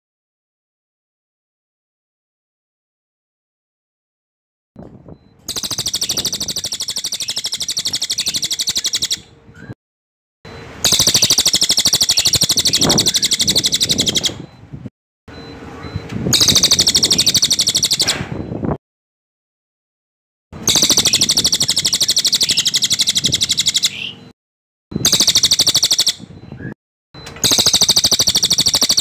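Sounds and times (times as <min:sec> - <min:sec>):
jay rolling rattle call: 0:05.5 - 0:09.2, 0:10.8 - 0:14.4, 0:27.4 - 0:29.0.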